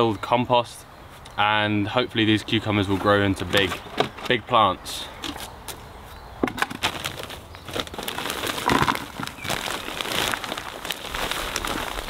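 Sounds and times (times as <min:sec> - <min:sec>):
plastic bag crinkling: 0:06.6 - 0:12.0
compost pouring into plastic pot: 0:06.9 - 0:12.0.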